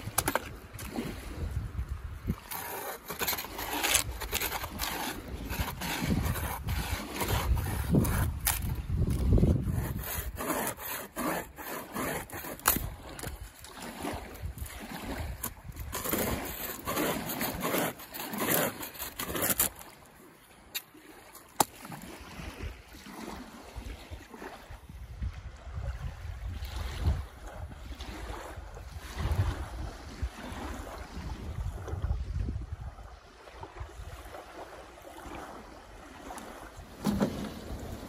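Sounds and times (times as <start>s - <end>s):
water: 0.0s - 38.0s
wind: 0.0s - 38.0s
hand saw strokes: 2.3s - 13.7s, 14.6s - 19.9s
rotten wood cracking and splintering: 2.4s - 13.5s, 14.7s - 19.8s.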